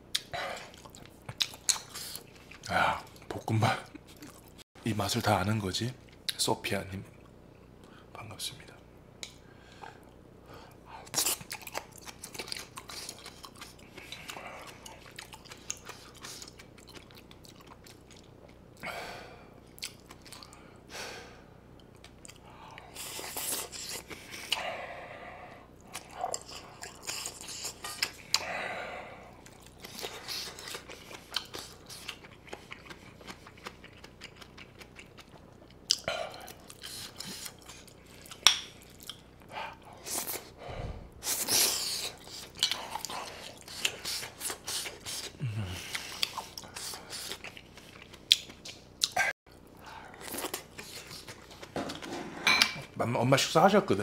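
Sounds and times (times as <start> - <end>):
close chewing and biting: 0.1 - 4.6, 11.1 - 18.6, 25.8 - 28.5, 29.3 - 40.5, 41.2 - 49.3, 50.1 - 52.1.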